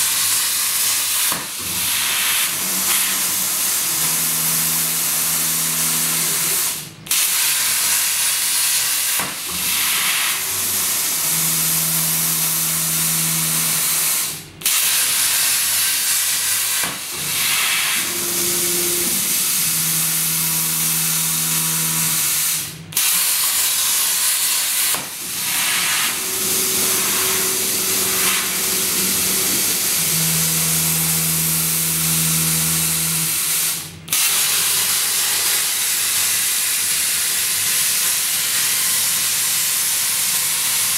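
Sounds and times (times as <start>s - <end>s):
plasma torch hissing: 0.0s - 40.9s
low hum: 26.0s - 33.2s.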